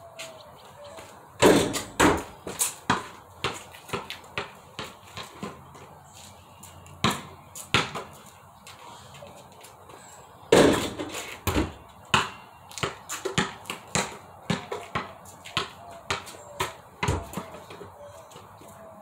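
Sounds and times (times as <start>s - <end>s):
ball banging on hoop: 1.4s - 2.3s, 10.5s - 17.6s
basketball bouncing: 1.4s - 5.6s, 7.0s - 8.1s, 10.5s - 17.6s.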